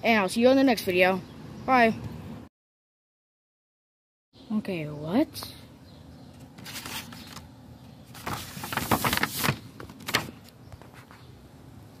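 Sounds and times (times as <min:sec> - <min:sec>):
paper rustling and crinkling: 0:06.4 - 0:07.5, 0:08.1 - 0:11.2.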